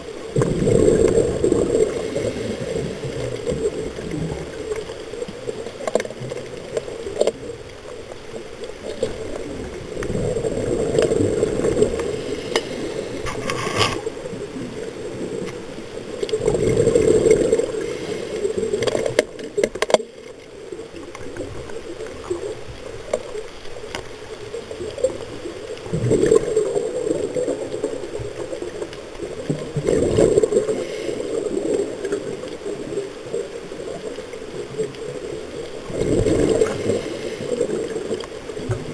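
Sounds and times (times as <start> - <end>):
bubbles gurgling underwater: 0.0 - 23.4, 24.5 - 38.9
diver breathing through regulator: 11.9 - 14.1, 30.5 - 31.6, 36.2 - 37.9.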